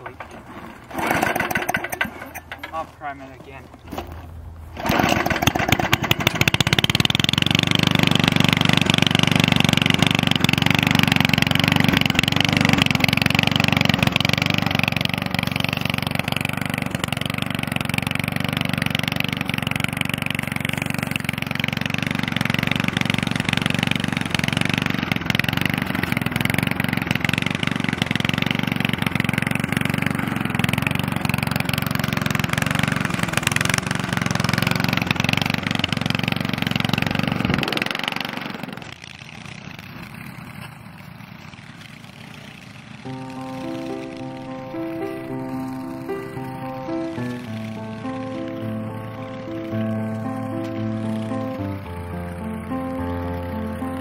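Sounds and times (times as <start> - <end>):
lawn mower engine running: 0.0 - 54.0
mower cutting dry scrub: 0.0 - 54.0.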